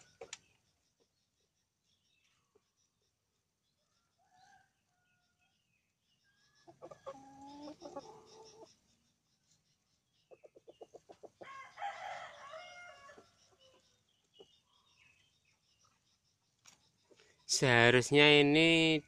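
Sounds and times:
chickens clucking: 0:06.5 - 0:17.4
rooster crowing: 0:11.4 - 0:13.3.

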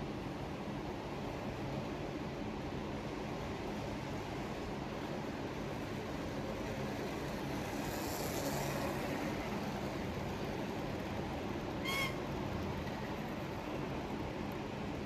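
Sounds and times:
model train wheels rumbling: 0:06.6 - 0:13.8.

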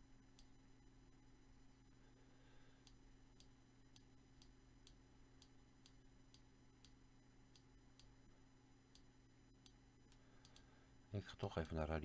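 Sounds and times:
low steady hum: 0:00.0 - 0:12.0
soft regular ticks: 0:02.8 - 0:08.2, 0:08.9 - 0:10.7, 0:11.4 - 0:11.9.

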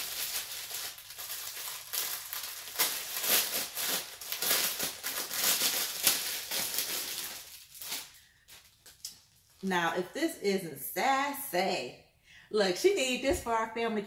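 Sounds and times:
plastic bags crinkling: 0:00.0 - 0:09.7.

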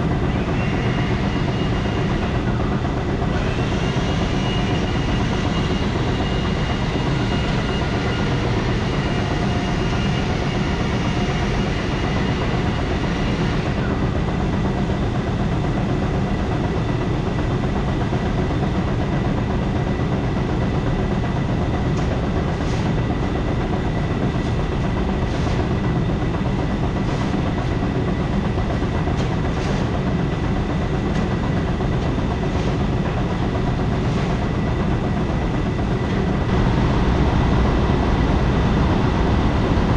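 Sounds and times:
grain auger running: 0:21.9 - 0:39.9.

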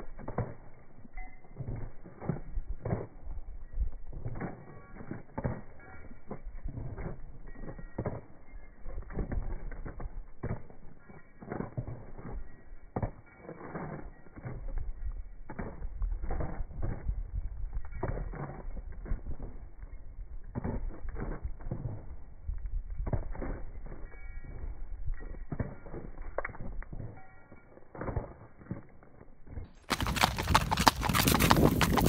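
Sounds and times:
horse hooves clopping on pavement: 0:00.0 - 0:32.0
saddle leather creaking: 0:29.7 - 0:32.0.

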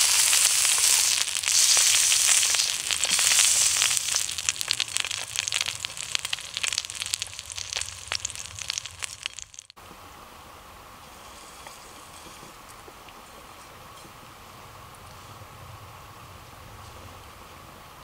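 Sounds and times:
steak sizzling in a pan: 0:00.0 - 0:09.8.

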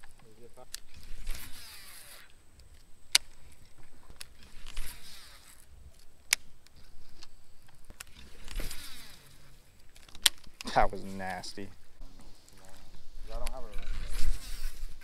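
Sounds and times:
sharp reel clicks: 0:00.0 - 0:03.4, 0:04.2 - 0:10.7
fishing reel spool whirring: 0:00.8 - 0:02.5, 0:03.6 - 0:05.8, 0:08.1 - 0:09.7.

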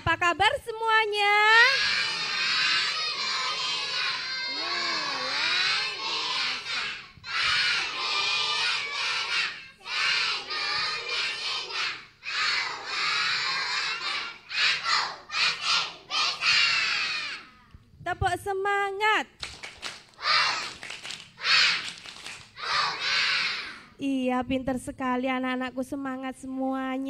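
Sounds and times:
children shouting in unison: 0:01.7 - 0:17.6, 0:20.2 - 0:20.8, 0:21.4 - 0:21.9, 0:22.6 - 0:23.9.

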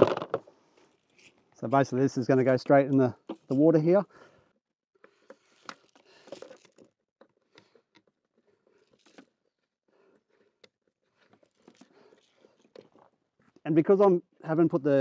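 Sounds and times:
plastic fitting clicks and rustles: 0:05.0 - 0:13.6.

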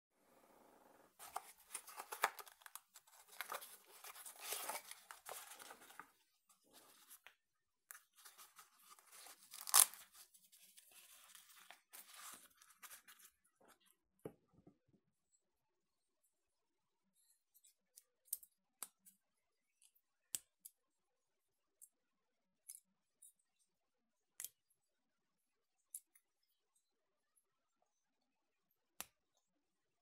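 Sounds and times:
packaging rustling: 0:01.2 - 0:07.2, 0:08.2 - 0:13.3.

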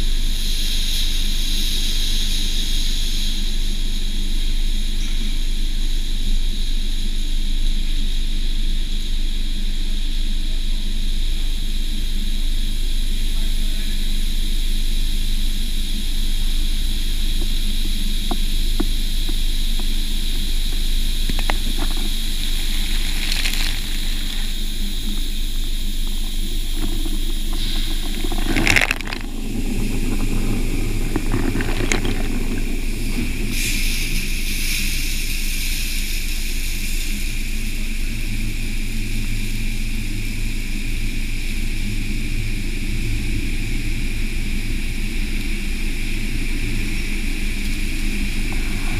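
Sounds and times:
car wash machine hum: 0:19.0 - 0:36.8
water spraying and splashing: 0:21.3 - 0:35.2.

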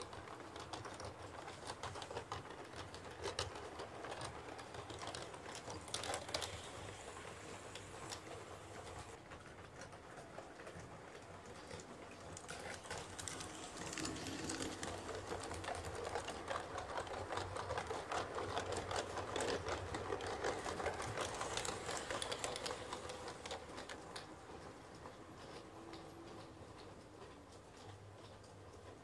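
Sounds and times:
model train wheels clattering: 0:00.0 - 0:29.0.

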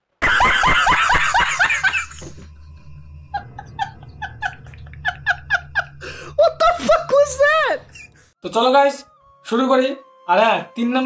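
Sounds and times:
man laughing hysterically: 0:00.2 - 0:02.5, 0:03.3 - 0:08.2.

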